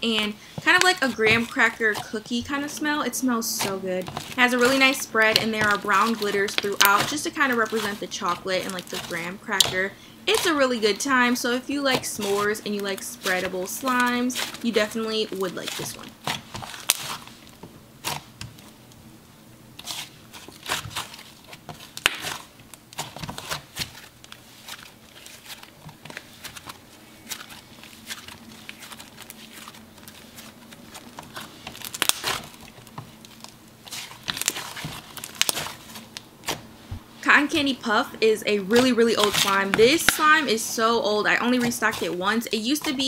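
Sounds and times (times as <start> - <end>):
slime crackling and clicking: 21.8 - 24.4, 31.2 - 36.6.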